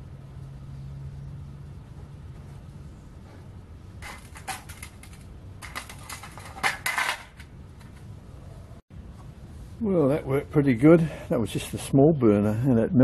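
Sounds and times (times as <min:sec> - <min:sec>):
metal tongs clinking and scraping: 0:04.0 - 0:07.4.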